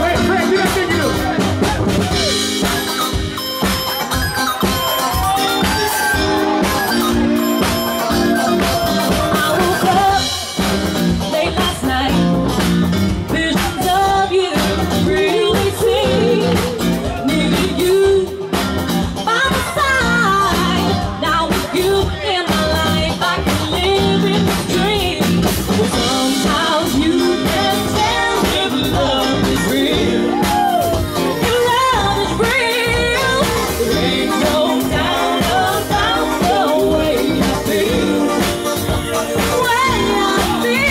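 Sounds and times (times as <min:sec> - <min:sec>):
live band playing: 0:00.0 - 0:40.9
person singing: 0:11.2 - 0:18.6, 0:19.3 - 0:40.9.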